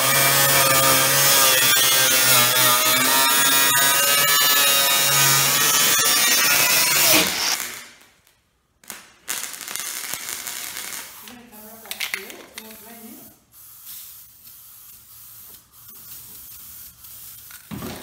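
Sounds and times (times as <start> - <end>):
angle grinder cutting sheet metal: 0.0 - 7.7.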